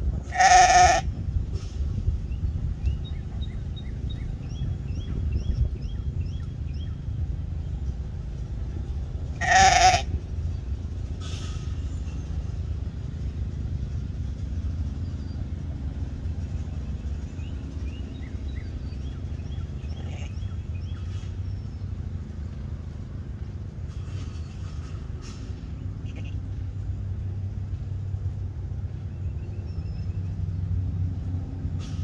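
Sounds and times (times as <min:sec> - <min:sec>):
low rumble: 0:00.0 - 0:32.0
sheep bleating: 0:00.3 - 0:01.1, 0:09.4 - 0:10.1.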